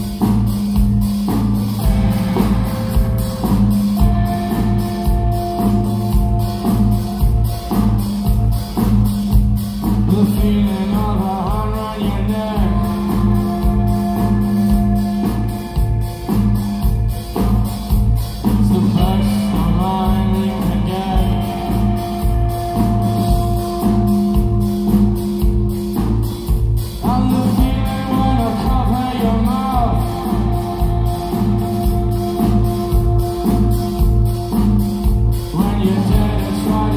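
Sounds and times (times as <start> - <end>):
drum kit beat: 0.0 - 36.9
live band playing: 0.0 - 36.9
man singing: 10.0 - 14.4, 18.5 - 22.4, 27.0 - 33.0, 35.3 - 36.9.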